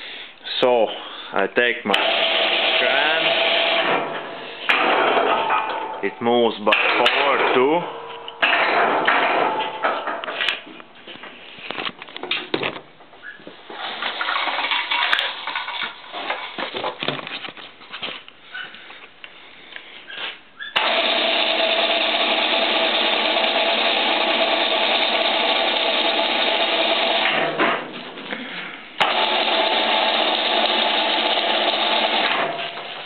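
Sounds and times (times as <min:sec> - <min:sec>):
electric hoist motor running: 0:01.9 - 0:04.1, 0:20.8 - 0:27.4, 0:29.0 - 0:33.0.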